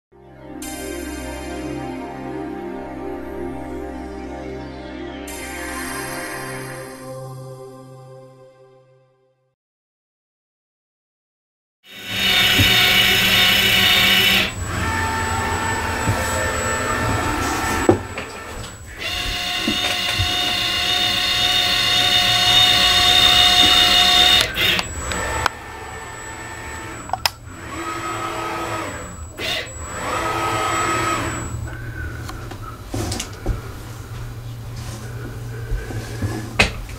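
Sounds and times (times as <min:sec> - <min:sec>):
printer motors whining: 0:11.9 - 0:36.9.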